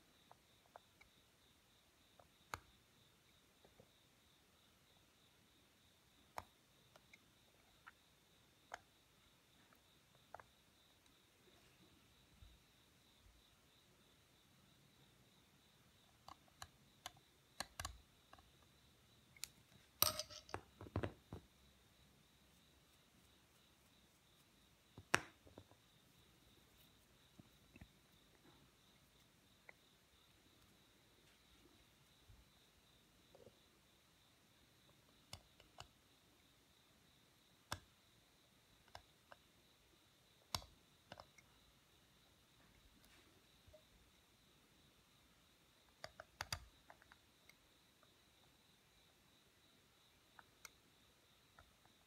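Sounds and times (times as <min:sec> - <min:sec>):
knife clicking on stone: 0:19.4 - 0:20.6
clicks and knocks: 0:20.0 - 0:21.5.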